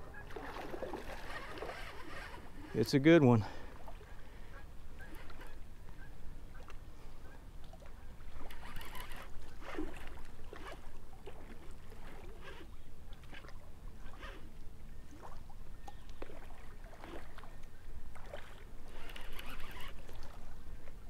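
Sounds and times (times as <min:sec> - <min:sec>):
water splashing at bank: 0:00.0 - 0:02.5, 0:15.1 - 0:20.6
fishing reel clicking: 0:01.0 - 0:03.1, 0:05.0 - 0:05.6, 0:08.4 - 0:10.8, 0:18.9 - 0:20.0.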